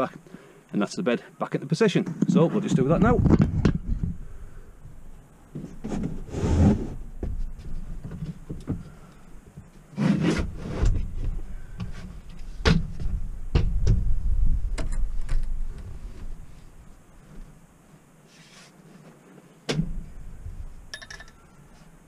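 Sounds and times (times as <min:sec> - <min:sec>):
wood sliding and rubbing: 0:05.6 - 0:08.4.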